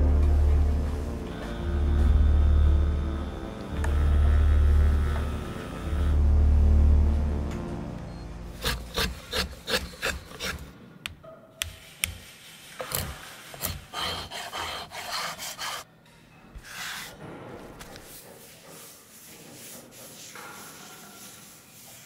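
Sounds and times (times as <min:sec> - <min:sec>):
scraping strokes on wood: 0:08.5 - 0:10.8, 0:11.6 - 0:15.9, 0:17.8 - 0:22.0
rasp strokes on wood: 0:08.6 - 0:10.7, 0:11.6 - 0:15.8.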